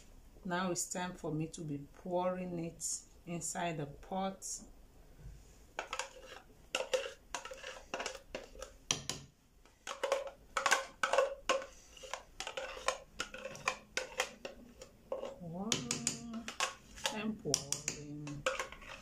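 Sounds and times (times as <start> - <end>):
spoon scraping plastic jug: 5.7 - 8.8, 9.8 - 19.0.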